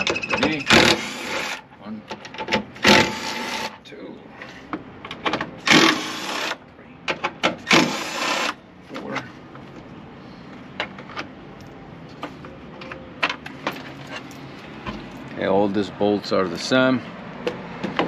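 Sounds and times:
power tool spinning bolts: 0:00.6 - 0:01.6, 0:02.8 - 0:03.8, 0:05.6 - 0:06.6, 0:07.6 - 0:08.6.

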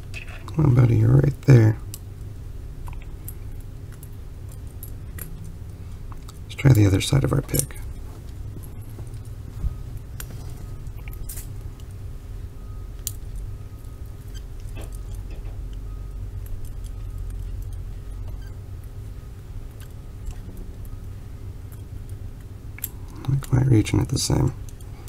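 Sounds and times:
steady low hum: 0:00.0 - 0:25.0
lock pick clicking and scraping: 0:14.3 - 0:18.6
handcuffs jangling: 0:16.5 - 0:18.2.

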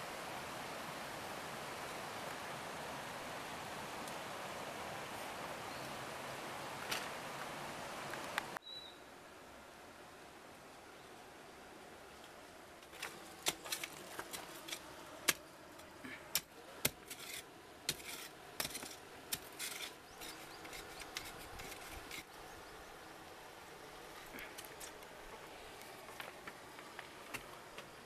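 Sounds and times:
gravel clicking and scraping: 0:12.8 - 0:22.4, 0:24.1 - 0:28.0.

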